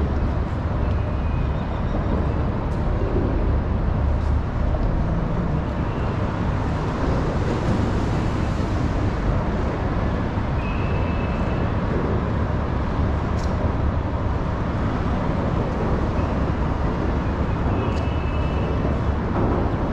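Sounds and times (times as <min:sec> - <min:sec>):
road traffic rumble: 0:00.0 - 0:19.9.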